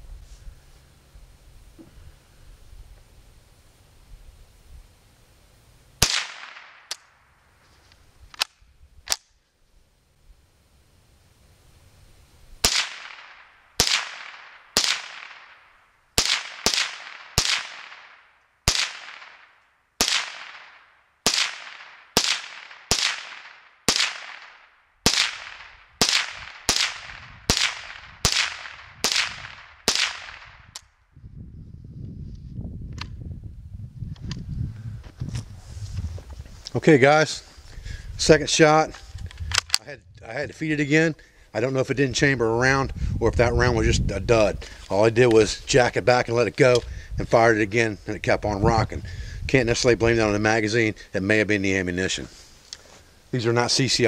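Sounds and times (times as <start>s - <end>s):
rifle shots: 6.0s - 7.2s, 12.6s - 30.8s.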